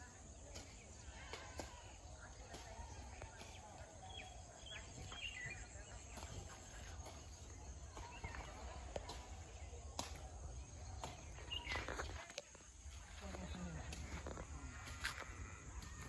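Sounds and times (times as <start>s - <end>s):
bird chirps: 3.4s - 9.4s, 10.0s - 12.5s.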